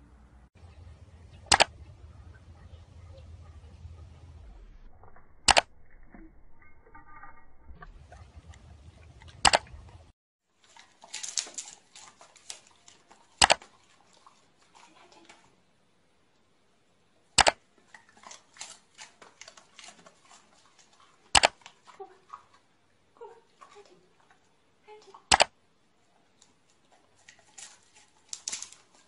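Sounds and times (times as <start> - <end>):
rustling: 7.8 - 15.3, 26.2 - 29.0.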